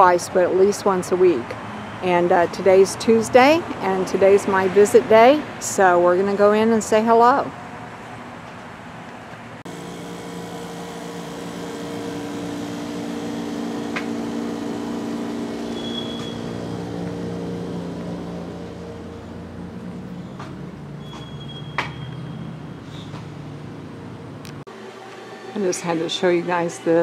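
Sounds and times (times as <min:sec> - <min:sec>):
air-conditioning hum: 0:00.0 - 0:21.0.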